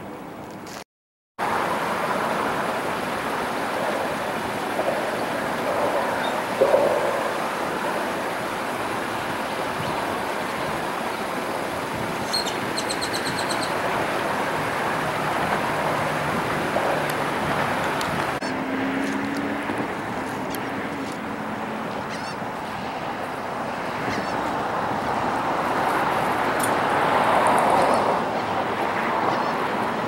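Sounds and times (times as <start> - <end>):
wind: 0.0 - 30.0
traffic rushing: 1.4 - 30.0
bird chirping: 12.2 - 13.7.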